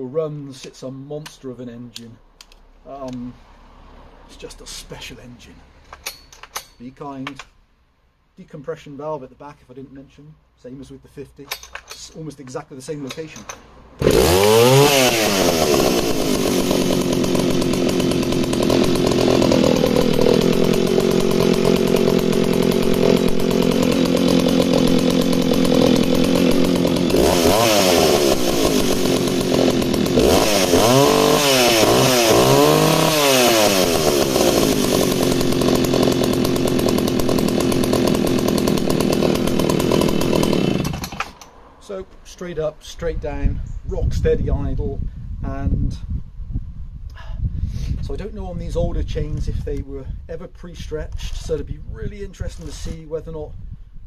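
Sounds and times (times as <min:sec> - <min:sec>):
chainsaw starting and revving: 0:13.0 - 0:41.6.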